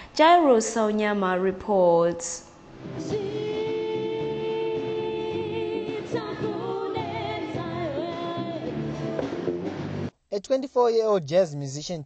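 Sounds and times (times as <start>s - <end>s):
pulsing bass line: 2.9s - 10.1s
person singing: 3.0s - 8.8s.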